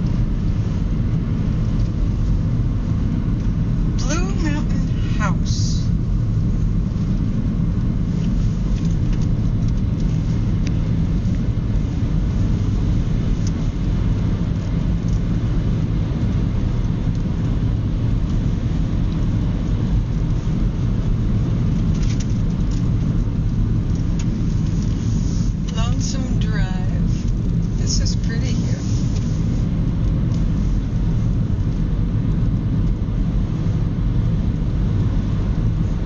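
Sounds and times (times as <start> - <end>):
car road and engine rumble: 0.0 - 36.0.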